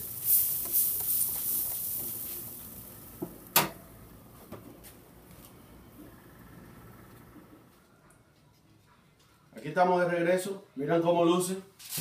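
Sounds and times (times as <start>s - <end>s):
spray bottle hiss: 0.0s - 2.9s.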